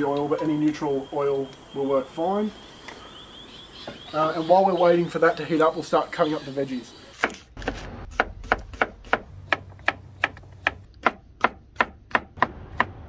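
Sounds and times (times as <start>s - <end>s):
knife chopping on wooden board: 7.2s - 13.0s.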